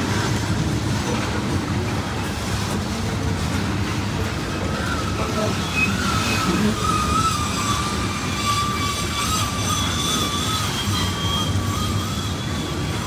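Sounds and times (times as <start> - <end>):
train wheels rumbling on rails: 0.0 - 13.0
steel wheels squealing: 4.4 - 13.0.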